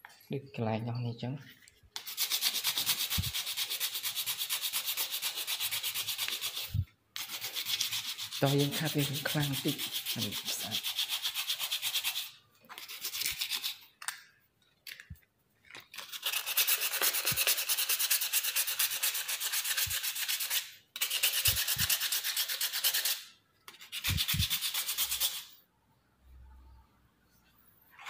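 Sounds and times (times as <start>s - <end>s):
sandpaper rubbing on wood: 2.0s - 13.8s, 16.0s - 25.5s.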